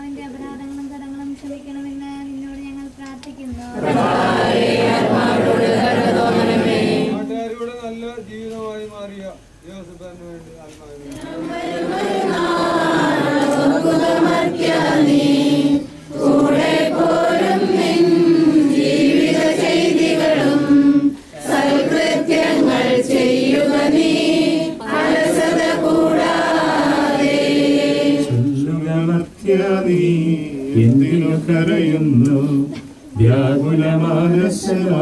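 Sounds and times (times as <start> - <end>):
group singing a hymn: 3.6 - 7.4, 11.0 - 35.0.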